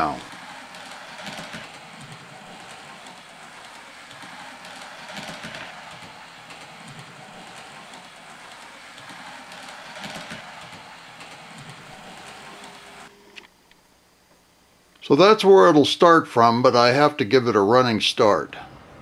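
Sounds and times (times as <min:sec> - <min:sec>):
model train motor whirring: 0:00.0 - 0:13.1
model train rattling: 0:00.0 - 0:13.1.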